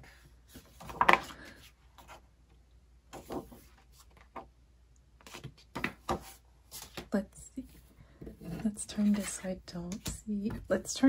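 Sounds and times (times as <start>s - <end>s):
booklet pages rustling: 0.5s - 2.2s, 3.1s - 4.5s.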